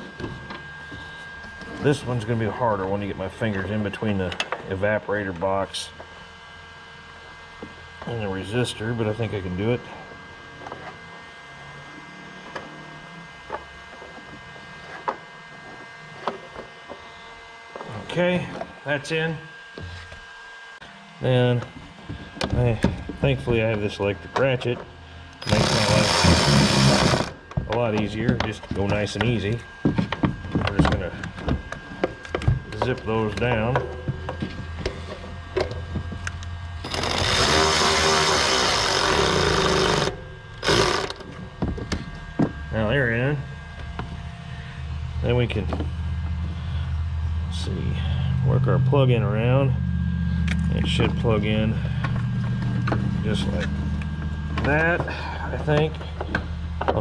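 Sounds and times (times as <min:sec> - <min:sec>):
faint low hum: 0:21.1 - 0:57.0
electric ratchet driving a screw: 0:25.4 - 0:27.4, 0:36.8 - 0:41.4.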